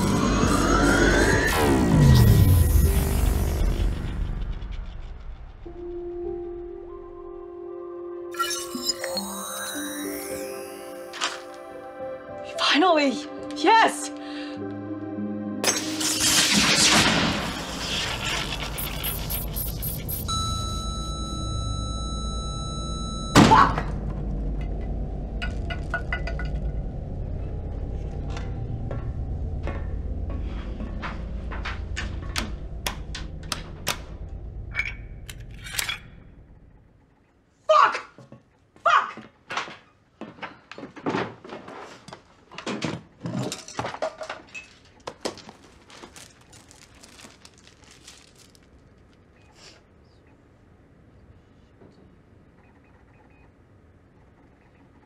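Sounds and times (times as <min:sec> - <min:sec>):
low steady drone: 0:24.0 - 0:36.9
small hard objects clattering: 0:43.4 - 0:49.4.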